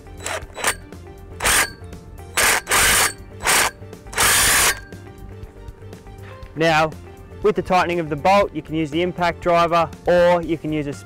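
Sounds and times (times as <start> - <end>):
impact driver tightening bolt: 0.0 - 0.8, 1.4 - 1.8, 2.4 - 4.9.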